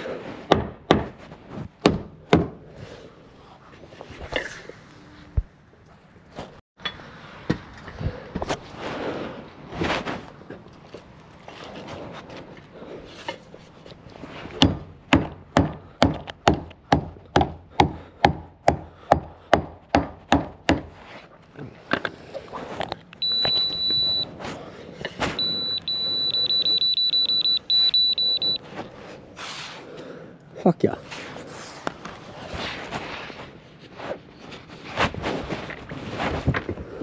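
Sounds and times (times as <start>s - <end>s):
hammer nailing timber: 0.5s - 1.2s, 1.8s - 2.6s, 14.6s - 20.9s
high electronic beeps: 23.2s - 24.3s, 25.4s - 28.6s.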